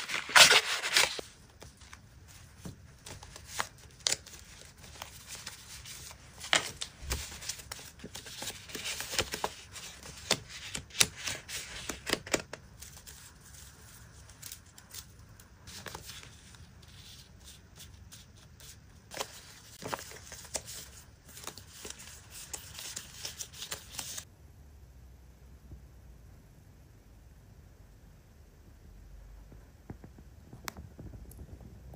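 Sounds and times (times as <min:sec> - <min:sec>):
paper rustling and flicking: 0:00.0 - 0:24.2.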